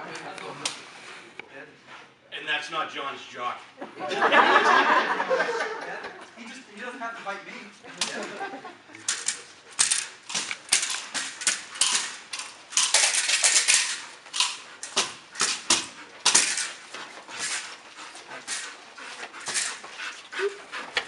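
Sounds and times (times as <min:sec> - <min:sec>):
dog biting and tugging bite suit: 0:09.8 - 0:21.0.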